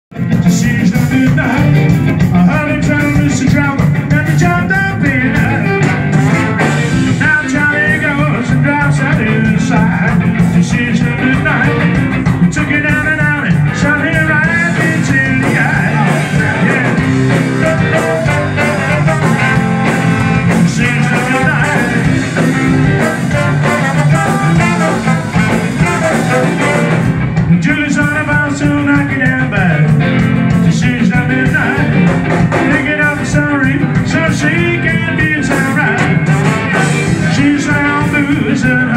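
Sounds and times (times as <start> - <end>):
live ska band: 0.1 - 38.9
vocals: 0.1 - 38.9
saxophone: 4.6 - 8.0, 16.0 - 27.3, 35.8 - 38.0
trombones: 5.4 - 8.5, 14.4 - 27.2, 35.5 - 38.0.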